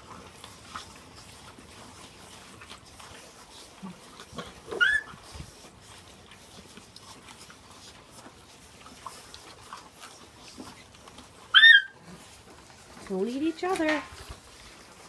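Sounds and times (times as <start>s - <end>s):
puppies chewing and gnawing: 0.0s - 15.0s
puppy yelping: 4.7s - 5.2s, 11.4s - 12.2s.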